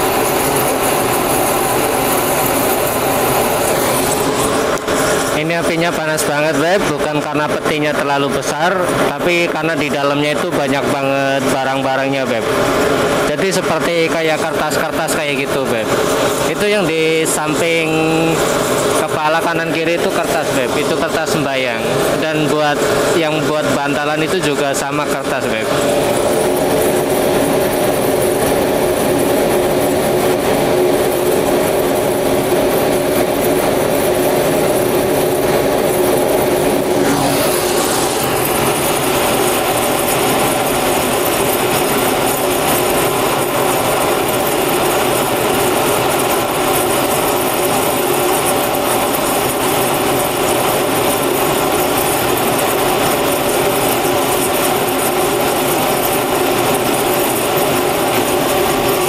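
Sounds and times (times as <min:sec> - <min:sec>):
furnace burner and blower roaring: 0:00.0 - 0:59.0.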